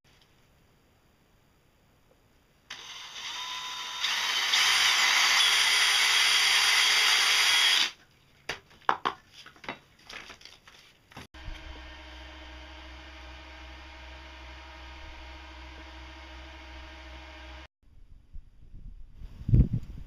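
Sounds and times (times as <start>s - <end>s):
cordless drill drilling: 2.7s - 8.0s.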